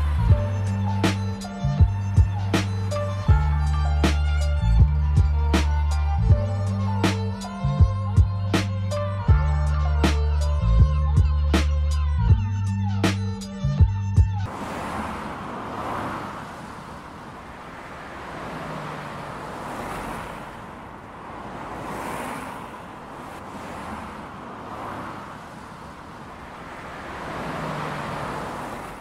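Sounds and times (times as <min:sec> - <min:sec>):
passing cars and trucks: 0:00.0 - 0:29.0.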